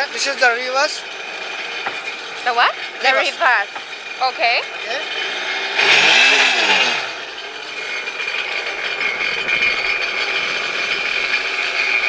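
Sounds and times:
jet ski engine idling: 0:00.0 - 0:12.0.

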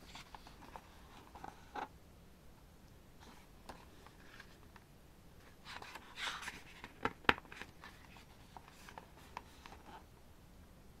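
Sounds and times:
paper rustle: 0:05.4 - 0:10.0.

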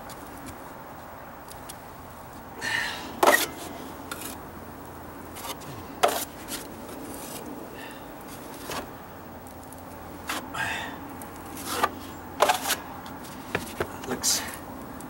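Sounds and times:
taping knife scraping compound: 0:03.2 - 0:04.4, 0:05.3 - 0:07.5, 0:11.5 - 0:13.8.

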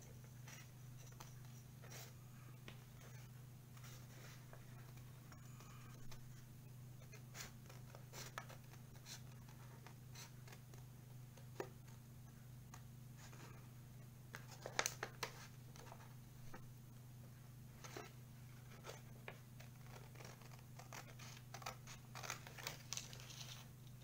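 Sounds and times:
paper rustling: 0:14.3 - 0:16.6, 0:17.8 - 0:24.0
scissors snipping paper: 0:19.6 - 0:23.6.

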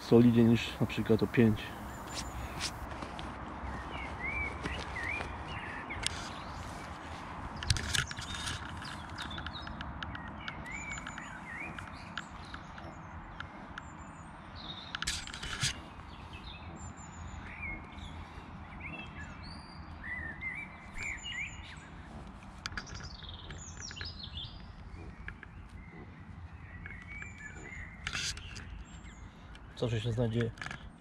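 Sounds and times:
small birds chirping: 0:00.0 - 0:31.0
sharp clicks: 0:07.6 - 0:13.9.

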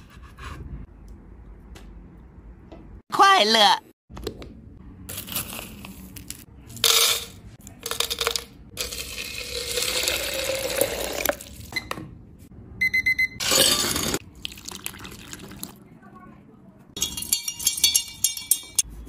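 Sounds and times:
ice clinking in glass jug: 0:07.9 - 0:11.5, 0:17.0 - 0:18.8
water pouring into glass jug: 0:08.8 - 0:11.6, 0:14.3 - 0:15.8.

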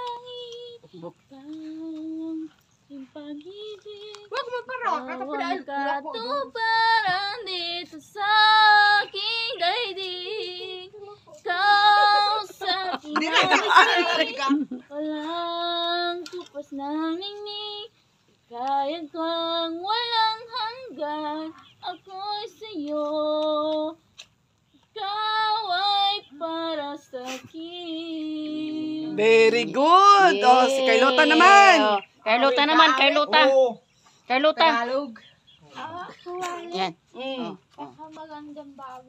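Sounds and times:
woman singing unaccompanied: 0:00.0 - 0:24.1, 0:24.8 - 0:33.4, 0:35.8 - 0:39.0.

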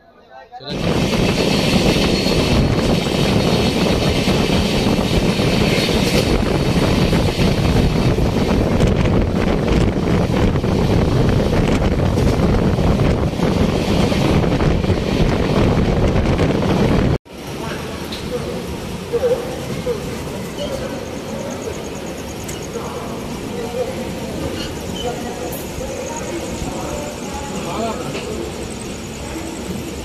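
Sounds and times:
wind rushing on microphone: 0:00.7 - 0:17.2
train wheels on rail: 0:00.7 - 0:30.0
passing train hiss: 0:17.3 - 0:30.0.

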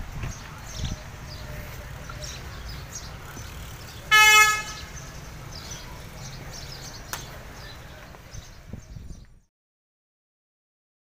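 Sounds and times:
vehicle horn toot: 0:04.1 - 0:05.0.

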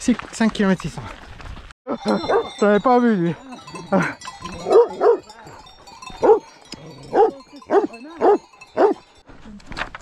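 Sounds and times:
dog barking: 0:02.3 - 0:02.5, 0:04.6 - 0:06.5, 0:07.1 - 0:09.0.

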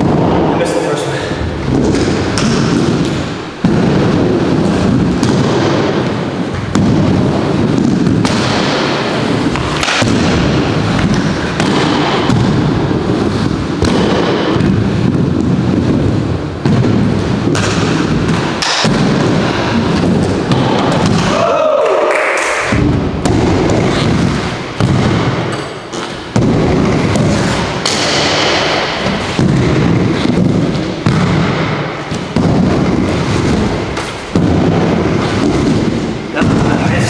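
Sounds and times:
skate wheels rumbling on wooden ramp: 0:00.0 - 0:37.0
sharp knocks: 0:01.4 - 0:21.7, 0:22.4 - 0:37.0
skates grinding on coping: 0:22.7 - 0:24.8, 0:25.8 - 0:37.0.

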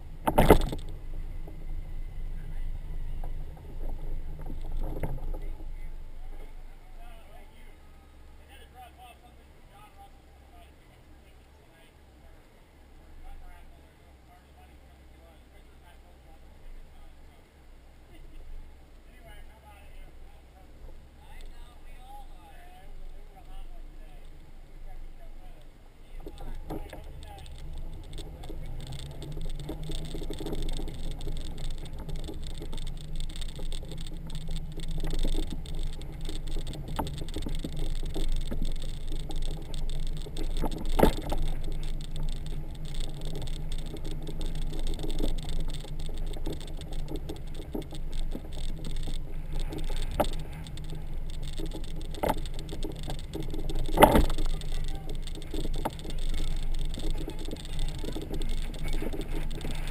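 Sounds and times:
motorcycle engine hum: 0:00.0 - 0:08.8, 0:14.6 - 0:59.9
road noise: 0:00.0 - 0:59.9
trailer rattling: 0:26.2 - 0:59.9.

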